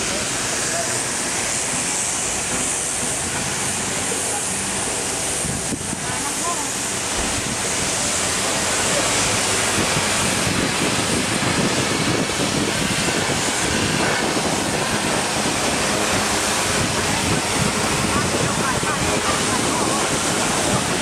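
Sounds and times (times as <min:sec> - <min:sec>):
wind on microphone: 0:05.3 - 0:06.2, 0:07.0 - 0:21.0.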